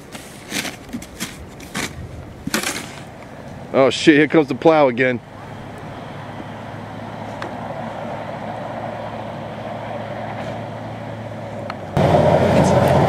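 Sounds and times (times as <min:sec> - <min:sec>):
snowplow truck engine hum: 0:04.4 - 0:13.0.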